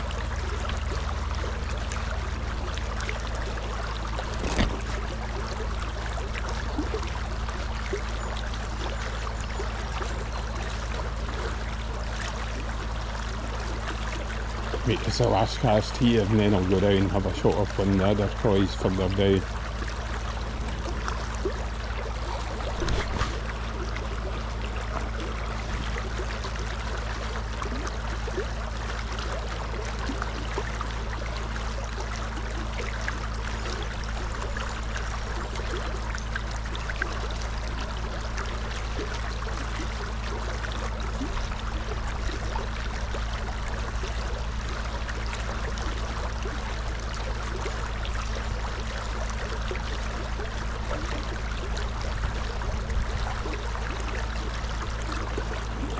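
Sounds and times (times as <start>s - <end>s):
river flowing: 0.0s - 55.9s.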